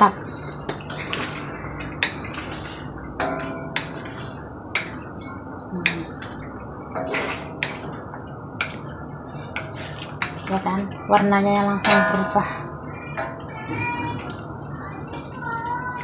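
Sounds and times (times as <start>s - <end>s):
wooden spatula scraping a steel wok: 0.8s - 3.2s, 3.8s - 5.4s.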